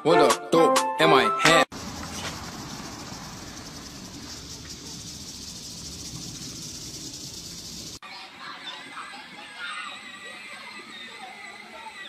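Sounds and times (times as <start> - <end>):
insects chirring: 1.7 - 12.0.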